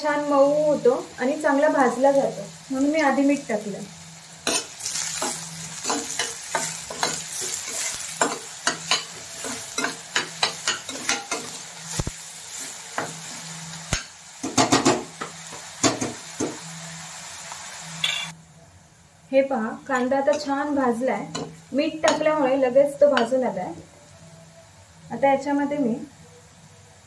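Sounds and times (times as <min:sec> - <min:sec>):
onions sizzling in oil: 0:00.0 - 0:27.0
metal spoon scraping a pan: 0:04.4 - 0:15.0
spoon knocking on a pan: 0:13.9 - 0:16.6.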